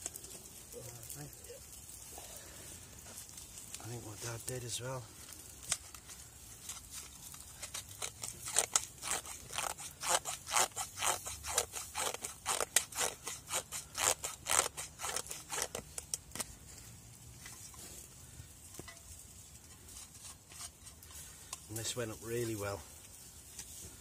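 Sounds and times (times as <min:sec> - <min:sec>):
knife scraping ferrocerium rod: 0:06.7 - 0:16.2.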